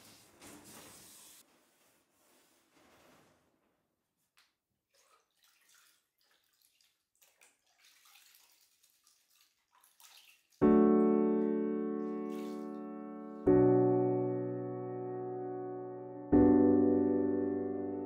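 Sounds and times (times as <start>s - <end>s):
water splashing in metal bucket: 4.9s - 11.1s
piano chord: 10.7s - 18.0s.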